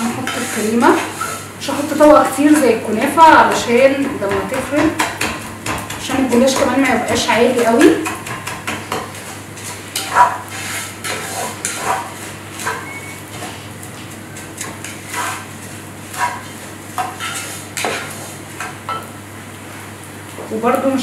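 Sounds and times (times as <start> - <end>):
wooden spoon scraping a pot: 0.0 - 2.7, 7.7 - 13.6, 14.3 - 18.4.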